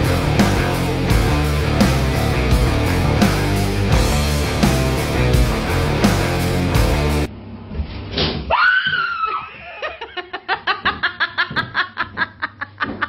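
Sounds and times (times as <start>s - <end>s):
loud rock music: 0.0s - 7.3s
woman screaming: 8.5s - 9.9s
fast rhythmic laughter: 9.6s - 13.0s.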